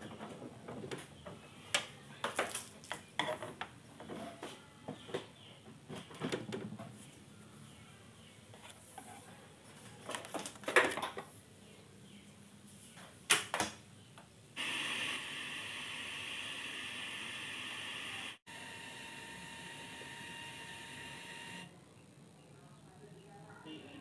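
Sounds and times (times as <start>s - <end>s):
tv static hiss: 14.4s - 24.0s.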